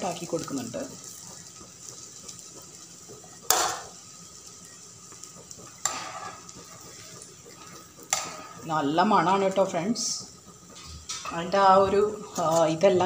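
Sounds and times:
food sizzling in hot oil: 0:00.0 - 0:13.0.

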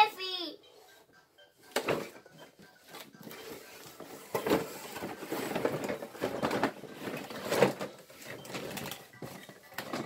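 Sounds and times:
plastic tubes sliding: 0:03.0 - 0:10.0.

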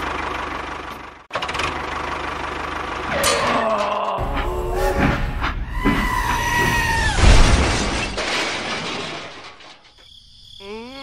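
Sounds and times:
wavering groan-like cry: 0:03.1 - 0:07.2
crash with shattering debris: 0:03.1 - 0:10.0.

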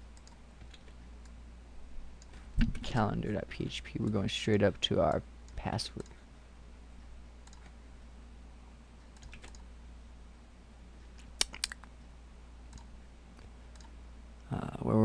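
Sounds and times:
faint low hum: 0:00.0 - 0:15.0
mouse and keyboard clicks: 0:11.2 - 0:11.9.

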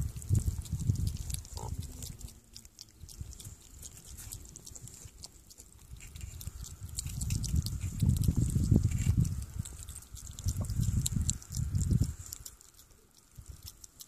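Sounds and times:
animal chewing wet food: 0:00.0 - 0:14.0
low rumble: 0:05.9 - 0:12.4.

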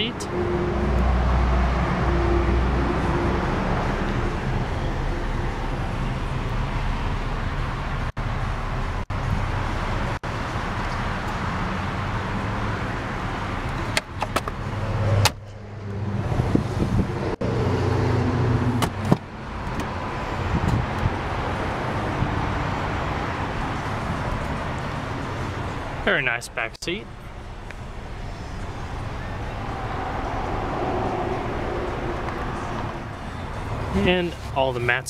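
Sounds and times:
car engine idling: 0:27.0 - 0:34.3.

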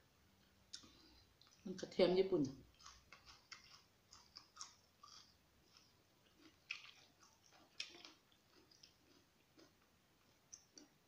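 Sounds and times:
crunchy chewing: 0:02.6 - 0:11.0.

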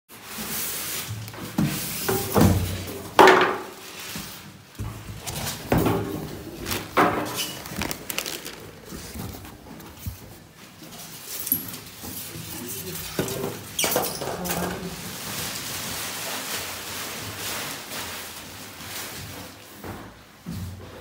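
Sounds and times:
cardboard and foam scrapes and knocks: 0:03.7 - 0:10.4.

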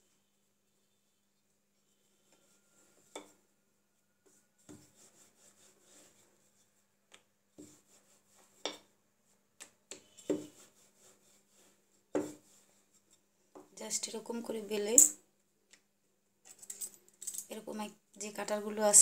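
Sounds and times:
rolling pin rubbing dough: 0:01.8 - 0:03.5, 0:04.2 - 0:08.8, 0:10.0 - 0:13.2.

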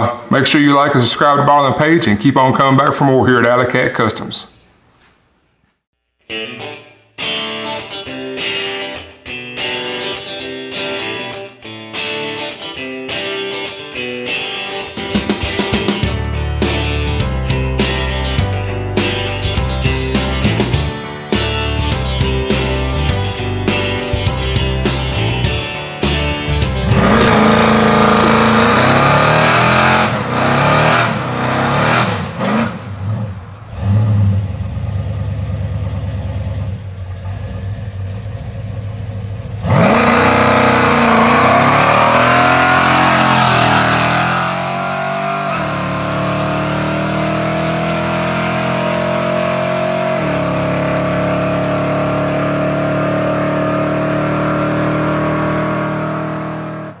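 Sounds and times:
engine revving hard: 0:26.8 - 0:34.6, 0:39.6 - 0:57.0
tyres spinning on asphalt: 0:30.1 - 0:46.2.

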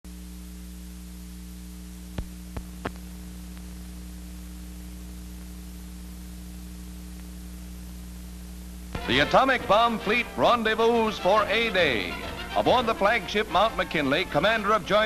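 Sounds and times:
film soundtrack hum and hiss: 0:00.1 - 0:15.0.

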